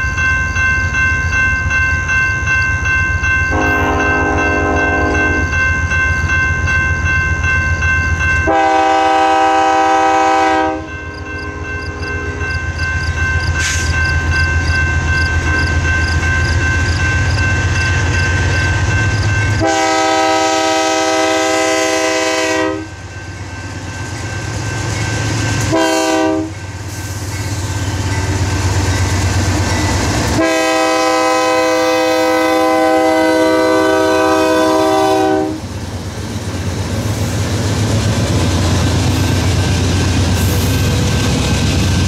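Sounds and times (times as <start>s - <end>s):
diesel locomotive engines rumbling: 0.0s - 42.0s
locomotive air horn blasts: 3.5s - 5.5s, 8.4s - 12.4s, 19.6s - 22.9s, 25.7s - 26.6s, 30.4s - 35.6s.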